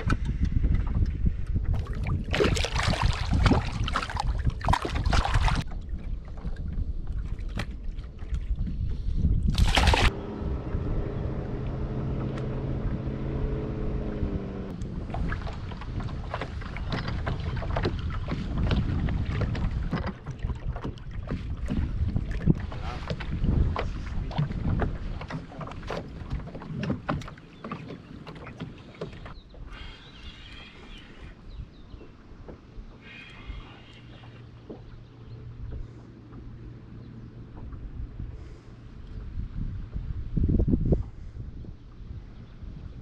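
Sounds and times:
wind on microphone: 0:00.0 - 0:27.4, 0:32.8 - 0:43.0
fish splashing at surface: 0:09.5 - 0:10.1
steady low hum: 0:09.6 - 0:15.3.

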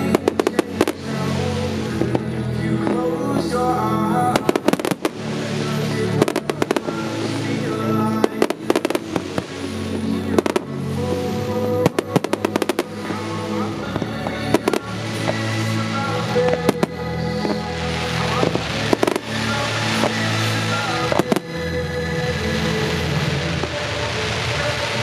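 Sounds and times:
fireworks bangs and crackles: 0:00.0 - 0:25.0
music: 0:00.0 - 0:25.0.

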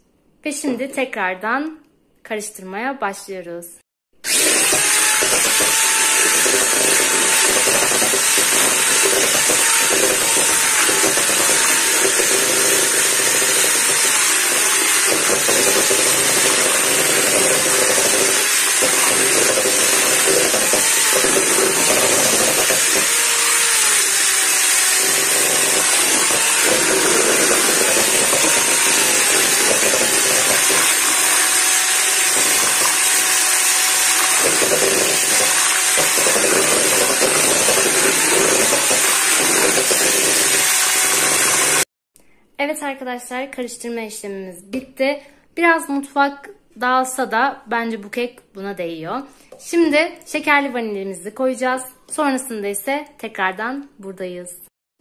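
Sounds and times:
electric hand mixer whining: 0:04.2 - 0:41.9
beaters whisking batter: 0:04.3 - 0:41.8.

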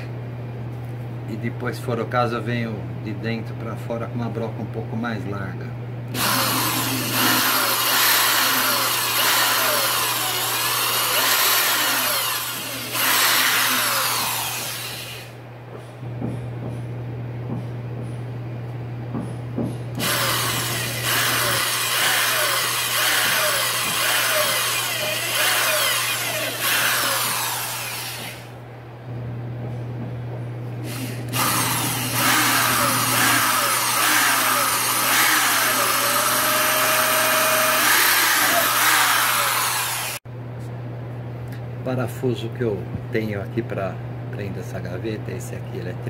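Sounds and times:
power drill boring through board: 0:06.1 - 0:15.4, 0:20.0 - 0:28.5, 0:30.9 - 0:40.2.

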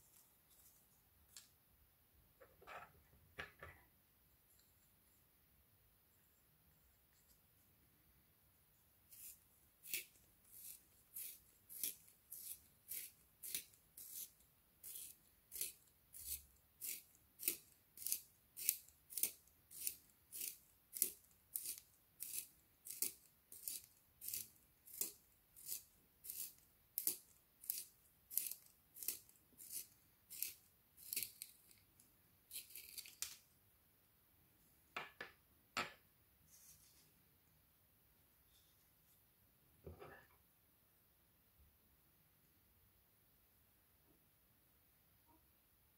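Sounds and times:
pencil sharpener shaving wood: 0:09.1 - 0:31.8.

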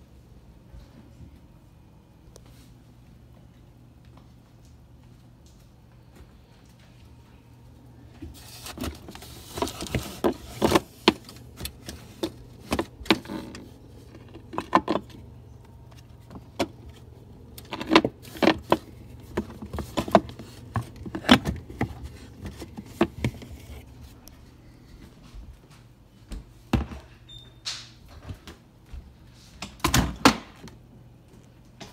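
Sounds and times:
low steady hum: 0:00.0 - 0:31.9
rustling: 0:08.2 - 0:24.3.

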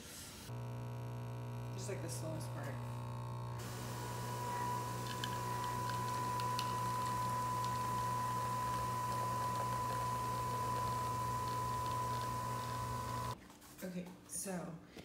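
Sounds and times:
coffee machine motor whine: 0:00.5 - 0:13.4
coffee streaming into glass: 0:03.6 - 0:13.4.

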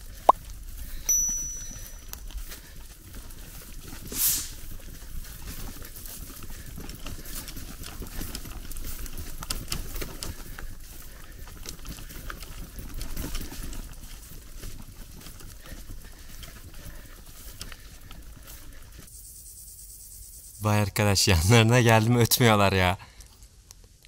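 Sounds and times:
loud hiss: 0:04.1 - 0:04.6
grasshoppers stridulating: 0:15.5 - 0:22.1.

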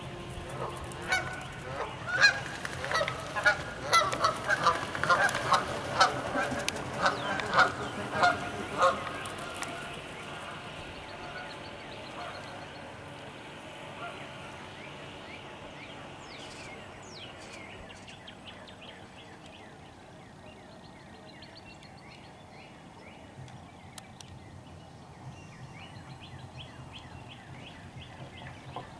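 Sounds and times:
geese honking: 0:00.0 - 0:16.9.

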